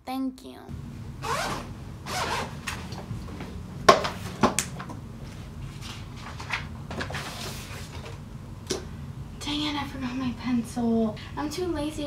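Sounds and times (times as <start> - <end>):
zip rasping open: 1.2 - 2.8
paper rustling: 5.2 - 8.2.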